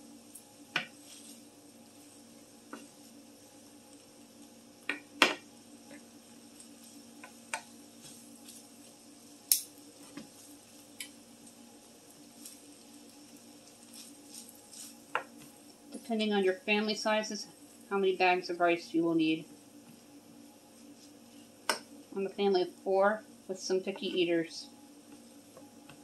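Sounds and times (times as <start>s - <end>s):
faint steady hum: 0.0s - 26.0s
wooden spatula knocking on pan: 0.7s - 1.0s.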